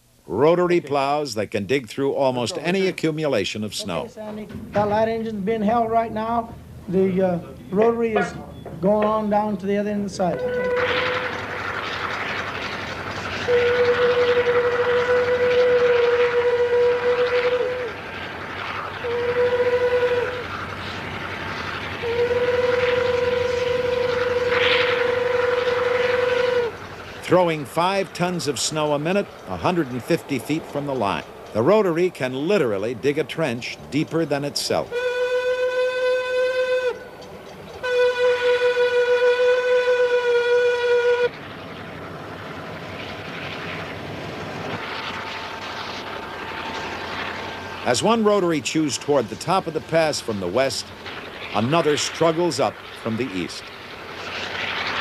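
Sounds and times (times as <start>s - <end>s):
rumble of railroad machinery: 0.0s - 55.0s
train horn blasts: 10.3s - 11.6s, 13.4s - 18.0s, 19.0s - 20.6s, 22.0s - 26.8s, 34.9s - 37.2s, 37.8s - 41.4s.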